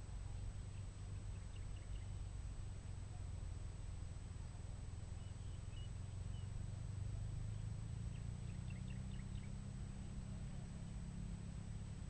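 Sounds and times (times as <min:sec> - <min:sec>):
small birds chirping: 0:00.3 - 0:02.4, 0:05.1 - 0:06.6, 0:07.5 - 0:11.3.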